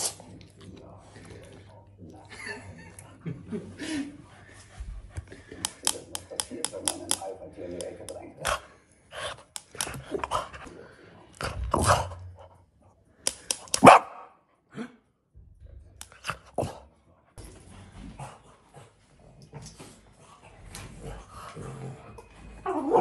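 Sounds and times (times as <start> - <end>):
sharp clicks: 13.2 - 13.8.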